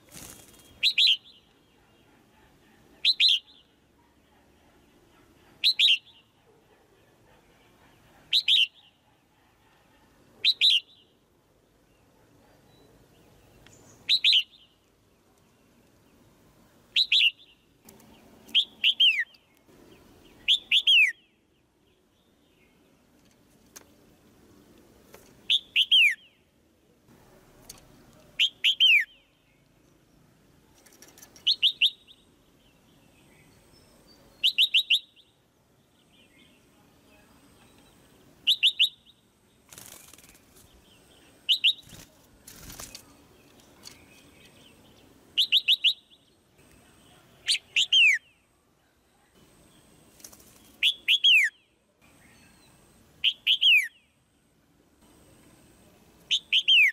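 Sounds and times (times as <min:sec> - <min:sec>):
noisy rustles: 0:00.0 - 0:00.9.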